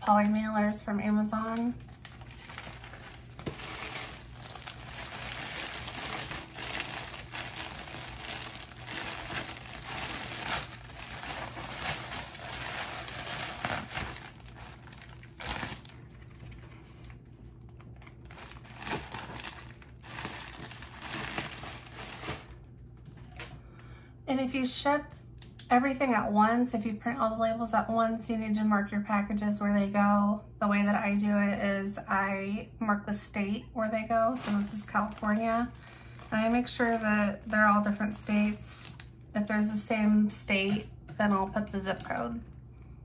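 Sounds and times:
plastic mailer crinkling: 0:01.5 - 0:23.4, 0:34.3 - 0:39.1.

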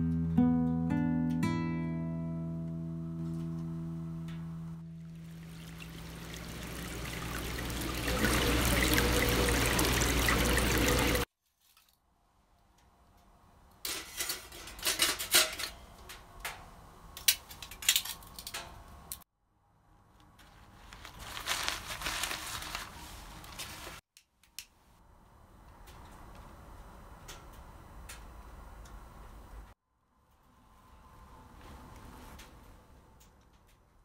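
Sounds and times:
rushing water-like noise: 0:05.0 - 0:11.3
crinkling handling sounds: 0:11.4 - 0:12.0, 0:20.2 - 0:24.0.

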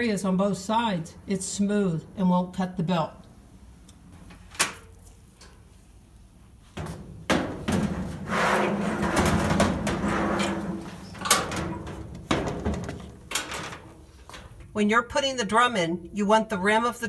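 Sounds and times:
metal drum scraping against cabinet: 0:06.8 - 0:14.3.

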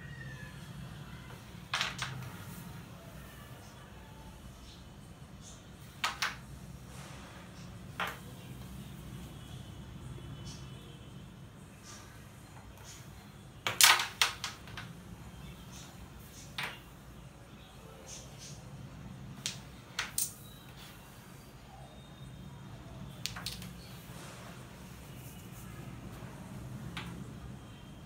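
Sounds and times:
clicks of carrom pieces: 0:01.6 - 0:02.6, 0:05.4 - 0:06.5, 0:13.6 - 0:15.0, 0:15.7 - 0:17.0, 0:19.4 - 0:20.8, 0:23.1 - 0:23.9
carrom striker clacking into pieces: 0:19.4 - 0:20.4, 0:23.2 - 0:23.8.

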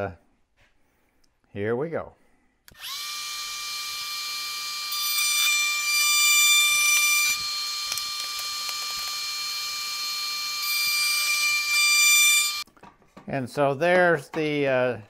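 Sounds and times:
router whining and cutting wood: 0:02.7 - 0:12.7.

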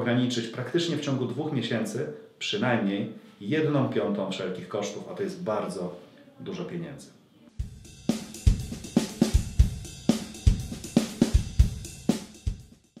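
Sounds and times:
music with drum-kit beat: 0:07.6 - 0:13.0.

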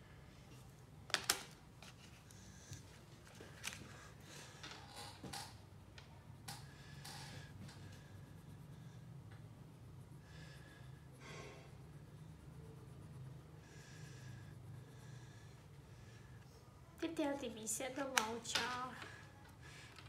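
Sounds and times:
steady low hum: 0:01.6 - 0:20.0
crayon scratching on paper: 0:07.8 - 0:09.1, 0:09.7 - 0:15.9.

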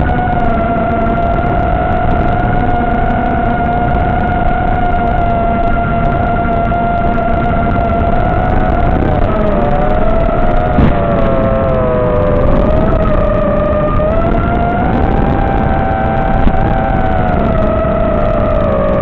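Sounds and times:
electric motors and propellers whining: 0:00.0 - 0:19.0
steady rushing noise: 0:00.0 - 0:19.0.

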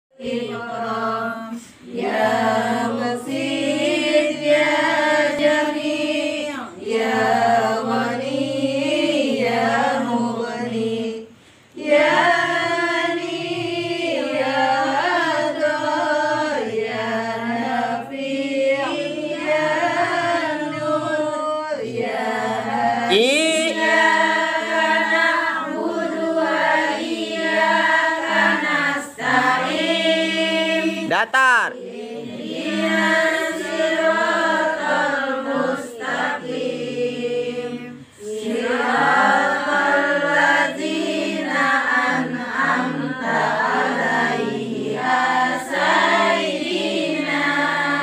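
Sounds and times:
women chanting in unison: 0:00.1 - 0:48.0.

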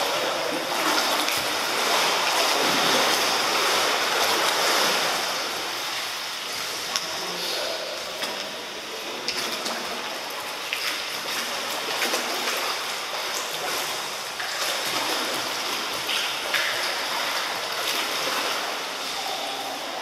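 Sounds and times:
pool water rushing and lapping: 0:00.0 - 0:20.0.

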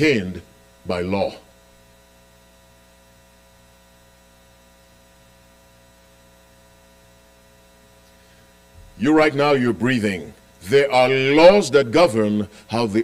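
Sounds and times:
faint electrical mains hum: 0:00.0 - 0:13.0.

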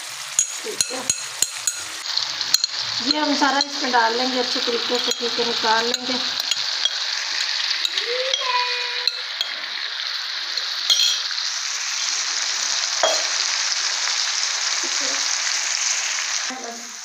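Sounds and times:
meat sizzling in hot oil: 0:00.0 - 0:17.0
utensil clinking against pan: 0:00.4 - 0:01.9, 0:02.5 - 0:02.8, 0:04.9 - 0:09.7, 0:10.9 - 0:11.3.

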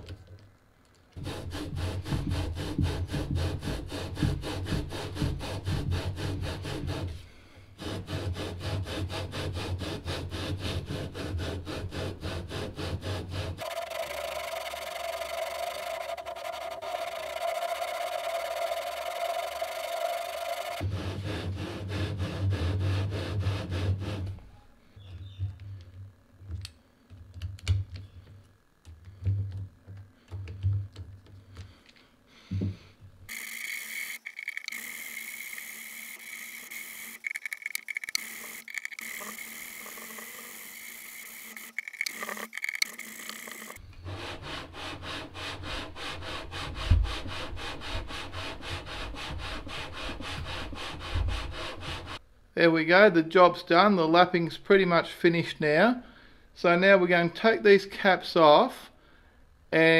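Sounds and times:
gritty rubbing rasp: 0:01.2 - 0:07.2, 0:07.8 - 0:24.4, 0:33.3 - 0:52.2.

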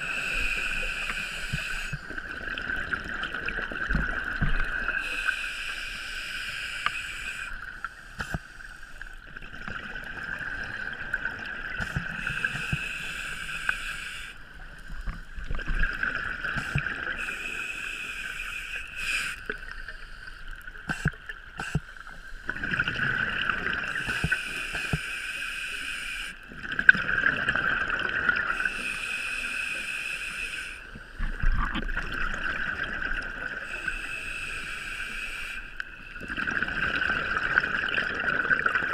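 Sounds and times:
diver breathing through regulator: 0:00.0 - 0:02.2, 0:04.9 - 0:09.2, 0:11.8 - 0:14.4, 0:16.6 - 0:22.5, 0:24.0 - 0:26.4, 0:28.5 - 0:30.9, 0:33.6 - 0:35.8
underwater bubbling: 0:00.0 - 0:38.9.

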